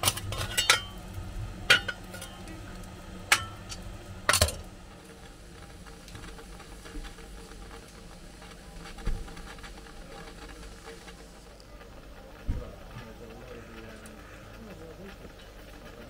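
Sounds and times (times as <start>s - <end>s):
shovel striking metal firehole: 0.0s - 1.0s, 1.7s - 2.4s, 3.3s - 4.6s.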